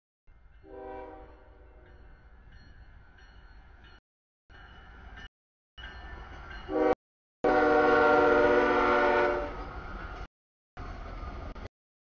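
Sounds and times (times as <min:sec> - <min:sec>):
train rumbling: 0:00.3 - 0:11.7
locomotive air horn: 0:00.7 - 0:01.4, 0:06.7 - 0:09.6.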